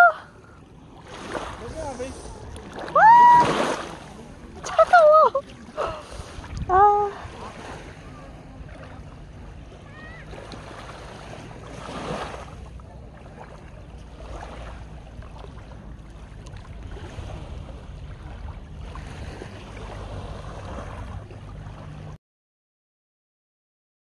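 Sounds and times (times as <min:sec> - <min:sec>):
low wind rumble on microphone: 0:04.5 - 0:22.2.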